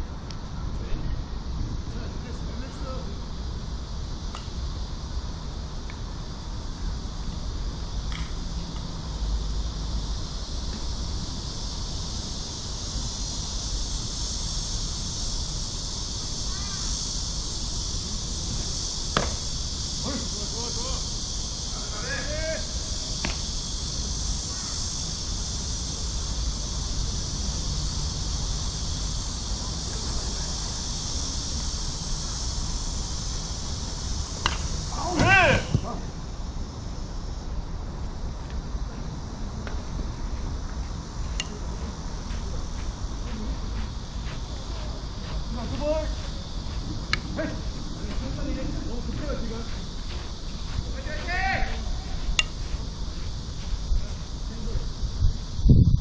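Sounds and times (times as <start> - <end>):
high outdoor hiss: 0.0 - 56.0
high-pitched insect drone: 0.0 - 56.0
wind rumbling on microphone: 51.7 - 56.0
wind buffeting microphone: 54.9 - 56.0.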